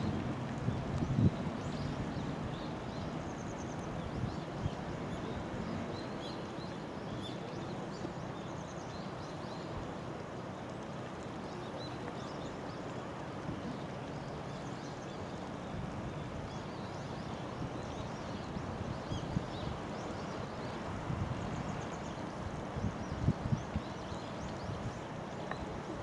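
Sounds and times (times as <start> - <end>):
river rushing over rocks: 0.0 - 3.3.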